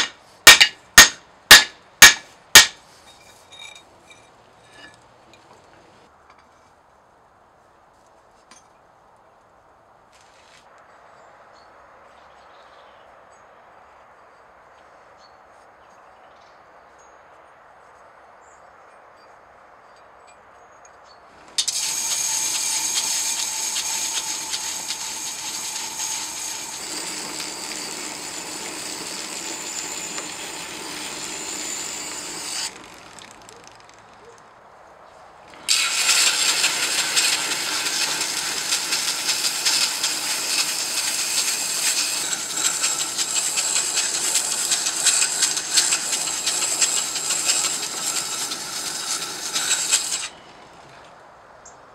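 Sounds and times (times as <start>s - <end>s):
grinding wheel grinding metal: 21.4s - 34.2s, 35.5s - 51.1s.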